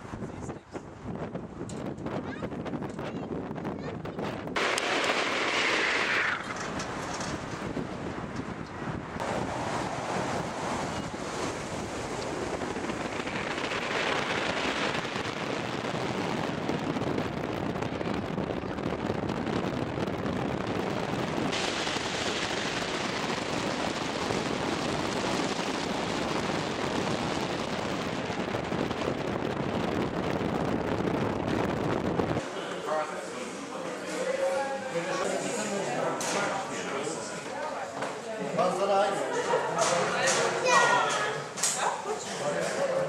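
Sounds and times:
wind rushing over microphone: 0.0 - 32.4.

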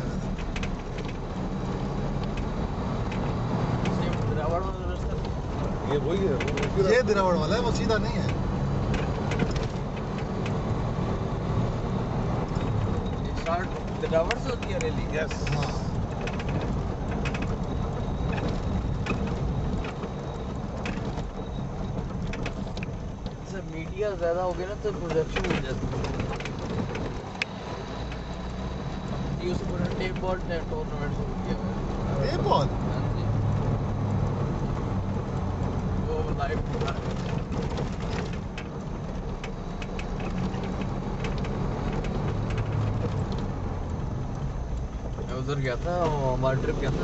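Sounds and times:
car rumbling on dirt road: 0.0 - 47.0
knocks and rattles from bumps: 0.0 - 47.0.

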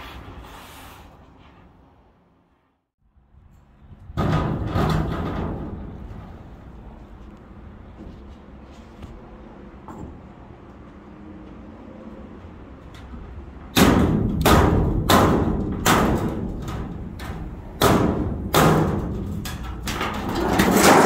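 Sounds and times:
hammer striking steel panel: 4.2 - 6.3, 13.7 - 21.0.

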